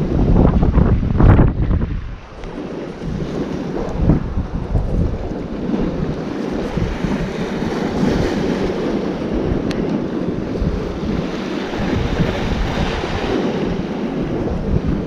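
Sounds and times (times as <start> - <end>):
sea waves breaking on rocks: 0.0 - 15.0
strong wind gusting: 0.0 - 15.0.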